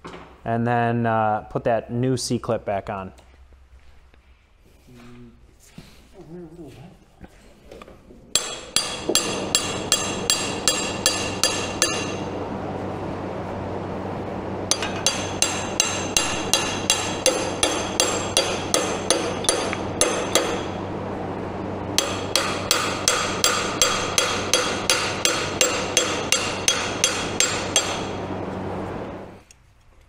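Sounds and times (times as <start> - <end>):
hammer tapping metal punch: 8.3 - 12.2, 14.7 - 20.8, 22.0 - 28.2.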